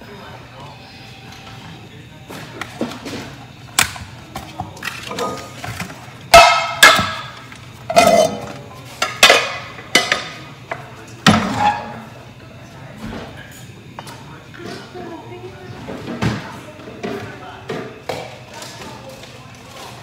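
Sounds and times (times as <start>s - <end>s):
metal pots and pans clanking: 5.0s - 7.3s, 7.9s - 10.3s.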